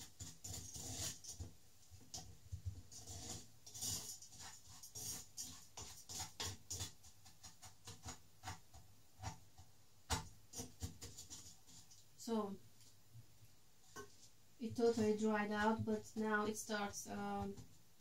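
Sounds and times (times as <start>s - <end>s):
wooden spoon scraping saucepan: 0.0s - 1.4s, 2.1s - 8.6s.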